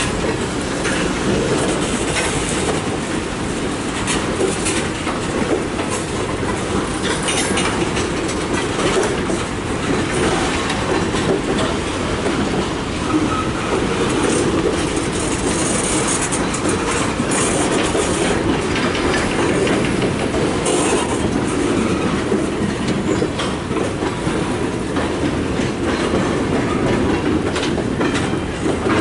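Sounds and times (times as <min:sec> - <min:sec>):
clickety-clack over rail joints: 0:00.0 - 0:29.0
steel wheels rumbling on rail: 0:00.0 - 0:29.0
wheel squeal: 0:13.0 - 0:13.7.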